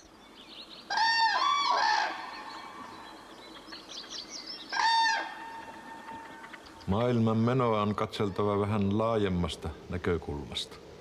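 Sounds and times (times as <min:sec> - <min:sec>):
rooster crowing: 0:00.9 - 0:02.3
small birds chirping: 0:02.2 - 0:09.0.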